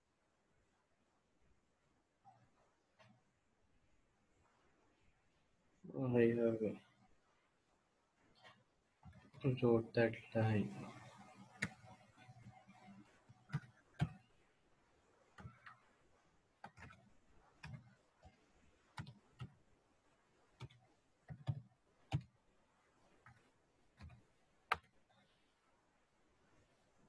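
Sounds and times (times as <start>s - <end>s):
computer keys clicking: 11.6s - 12.8s, 13.4s - 14.3s, 16.6s - 19.6s, 20.6s - 22.3s, 24.0s - 24.9s.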